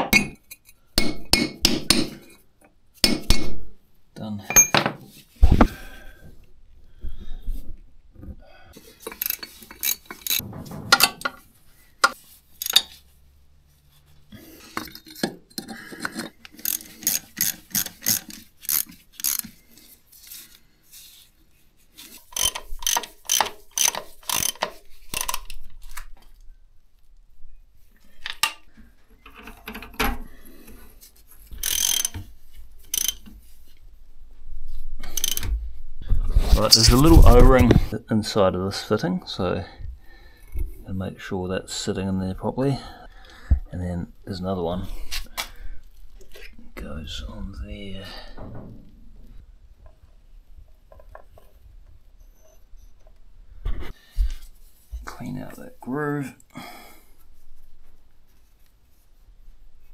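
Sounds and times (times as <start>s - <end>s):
metal tools clinking: 4.5s - 5.0s, 12.0s - 13.0s
socket ratchet wrench clicking: 12.6s - 12.9s, 16.6s - 19.5s, 22.3s - 25.5s, 31.6s - 32.2s, 32.9s - 33.2s, 35.1s - 35.5s.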